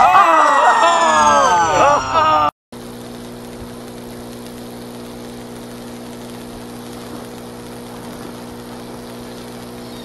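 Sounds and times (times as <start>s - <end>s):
substation electrical hum: 0.5s - 10.0s
light hiss: 2.8s - 10.0s.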